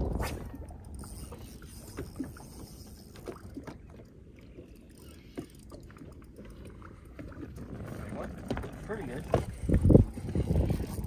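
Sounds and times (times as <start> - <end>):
wind rumble on microphone: 0.0 - 2.6, 7.6 - 11.0
waves lapping against boat hull: 0.0 - 11.0.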